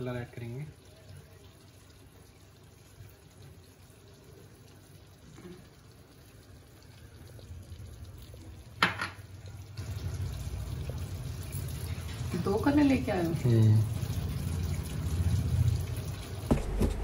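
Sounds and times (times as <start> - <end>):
sharp knock: 16.5 - 17.0.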